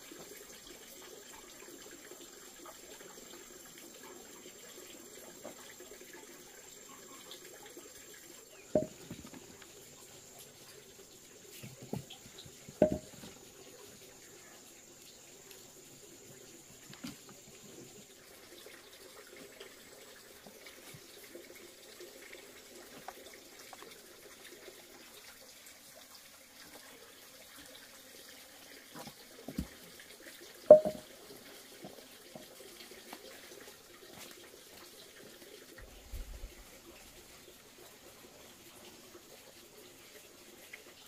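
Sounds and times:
bananas knocking on wooden boards: 8.8 - 9.4, 12.8 - 13.3, 30.7 - 31.0.

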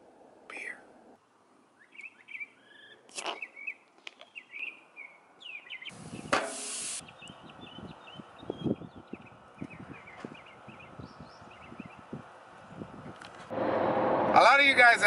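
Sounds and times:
birds chirping: 1.8 - 13.2
hiss with a knock: 6.0 - 7.0
bottle cap opening hiss: 6.2 - 7.0.

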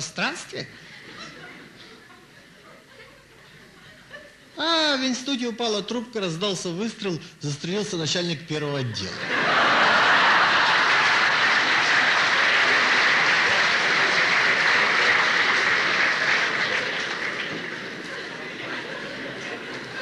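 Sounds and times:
audience applauding: 9.3 - 20.0.

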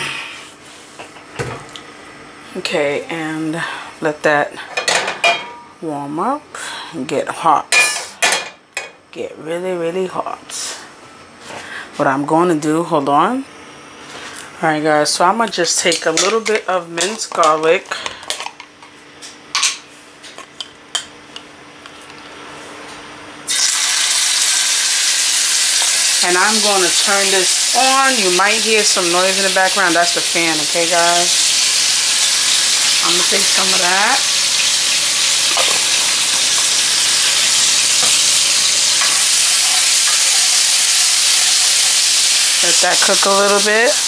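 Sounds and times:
kitchen fan: 0.0 - 44.0
garlic sizzling in hot oil: 23.5 - 44.0.

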